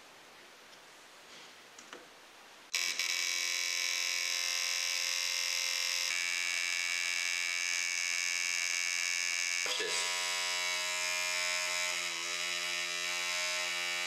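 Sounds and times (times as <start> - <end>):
induction coil buzzing: 2.7 - 14.0.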